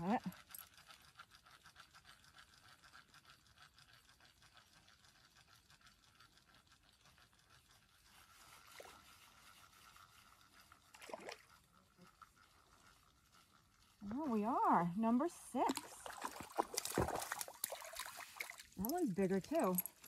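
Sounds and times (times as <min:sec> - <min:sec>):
fishing reel ticking: 0:00.0 - 0:16.0, 0:18.7 - 0:20.0.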